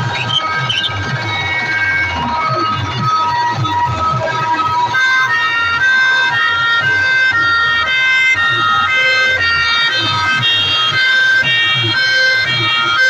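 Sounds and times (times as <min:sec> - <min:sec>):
pulsing bass beat: 0:00.0 - 0:13.0
siren-like electronic melody: 0:00.0 - 0:13.0.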